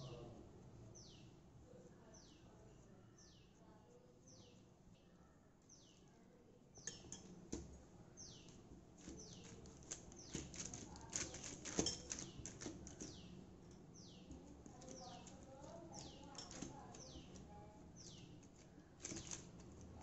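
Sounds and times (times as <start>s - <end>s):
bird chirping: 6.8s - 7.3s, 8.2s - 10.7s, 11.8s - 17.4s, 18.0s - 19.5s
hands patting dough: 6.9s - 13.4s
plastic sheet crackling: 9.0s - 13.1s, 18.5s - 20.0s.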